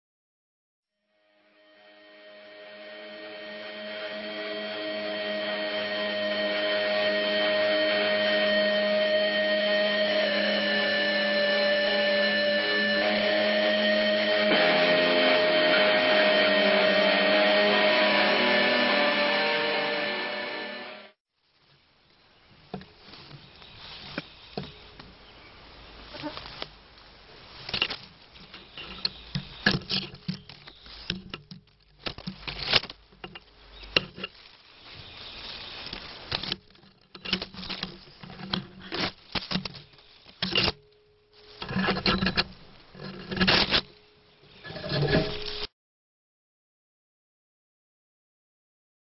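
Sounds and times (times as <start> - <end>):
leaves rustling and crackling: 21.3 - 45.7.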